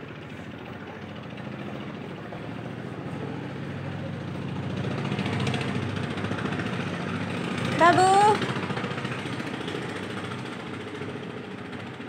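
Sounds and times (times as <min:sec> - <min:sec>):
low engine hum: 0:00.0 - 0:12.0.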